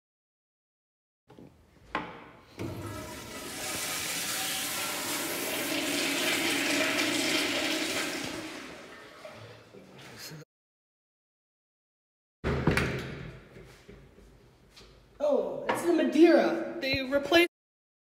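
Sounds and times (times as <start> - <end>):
flush valve click: 2.6 - 5.2
toilet water rushing: 2.6 - 9.9.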